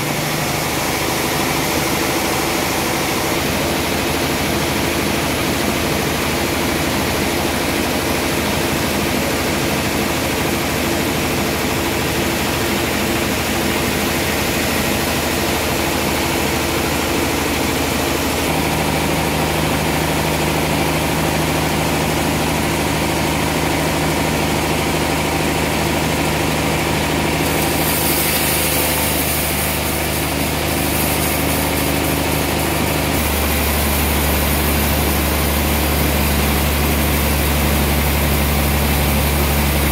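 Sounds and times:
band saw cutting log: 12.4s - 39.9s.

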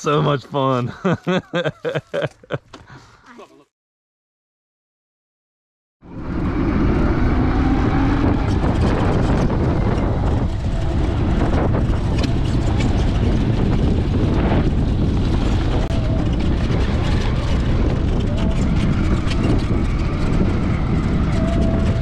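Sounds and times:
wind rushing over microphone: 6.0s - 22.0s.

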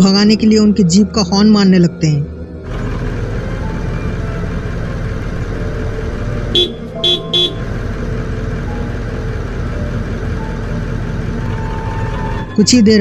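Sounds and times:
low background rumble: 0.0s - 13.0s
vehicle horn short blasts: 6.6s - 7.8s.

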